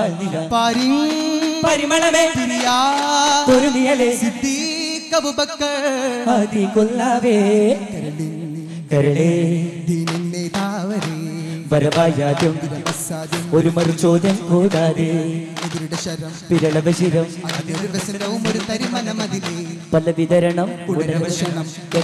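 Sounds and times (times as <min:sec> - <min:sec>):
men singing devotional song: 0:00.0 - 0:22.0
frame drum strokes: 0:10.0 - 0:20.0.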